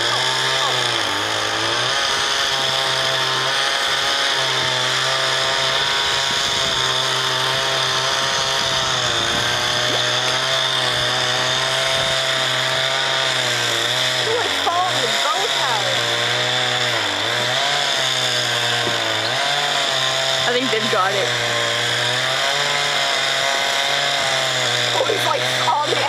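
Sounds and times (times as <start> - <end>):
chainsaw cutting tree: 0.0 - 26.0.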